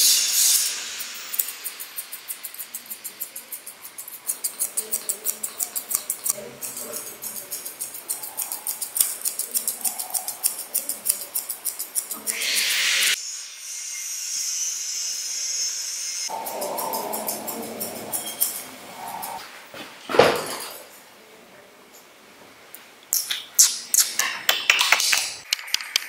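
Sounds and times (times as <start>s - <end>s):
high hiss: 0.0s - 4.9s, 12.1s - 19.4s
shears snipping fur: 1.1s - 12.8s.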